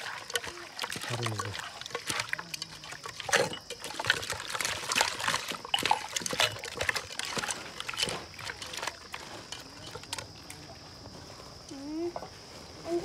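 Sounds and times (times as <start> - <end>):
hands squishing raw chicken: 0.0 - 10.3.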